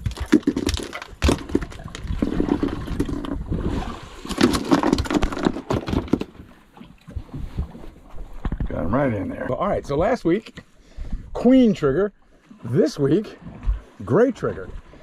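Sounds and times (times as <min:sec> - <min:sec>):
fish flopping on boat deck: 0:00.0 - 0:08.7.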